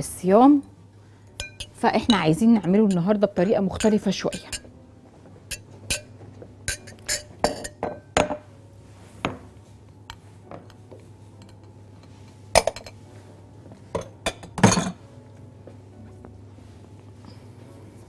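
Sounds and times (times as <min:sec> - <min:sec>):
glassware and dishes clinking: 0:05.5 - 0:08.4, 0:11.4 - 0:13.0, 0:13.9 - 0:15.0.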